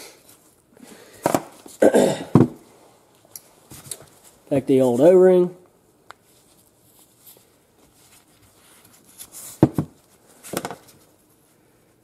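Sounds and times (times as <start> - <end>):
faint rustling: 6.1 - 12.0.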